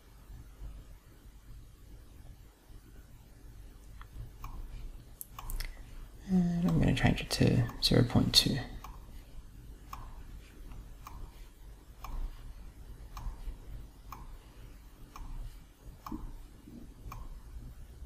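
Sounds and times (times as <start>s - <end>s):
low steady hum: 0.0s - 18.0s
clock ticking faintly: 3.9s - 18.0s.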